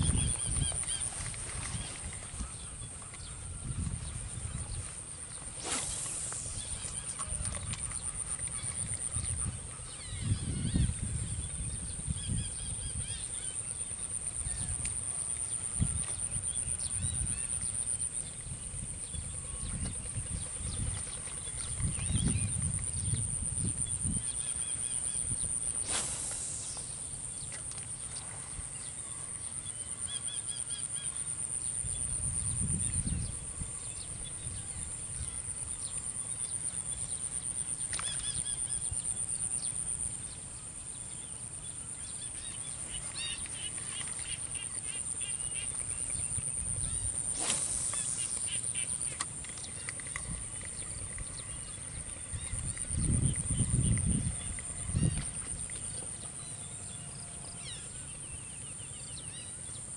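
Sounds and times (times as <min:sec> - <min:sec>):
high-pitched whine: 0:05.5 - 0:08.4, 0:25.7 - 0:27.5, 0:46.8 - 0:49.0.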